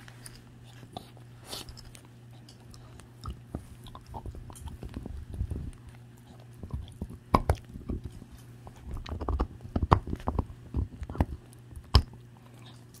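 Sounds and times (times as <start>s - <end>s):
dog chewing bone: 0.3s - 13.0s
teeth clicking on bone: 1.8s - 13.0s.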